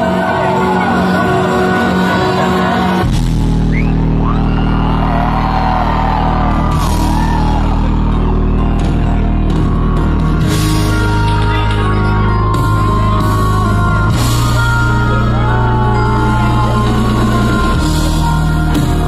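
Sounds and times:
crowd shouting: 0:00.0 - 0:19.0
live band through loudspeakers: 0:00.0 - 0:19.0.

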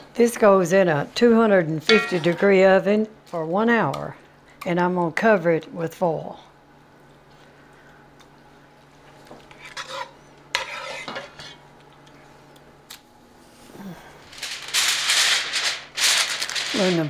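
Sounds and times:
faint steady hum: 0:00.0 - 0:17.0
spoons scraping and clinking on pot: 0:09.5 - 0:11.6
aluminium foil crinkling: 0:14.2 - 0:17.0.

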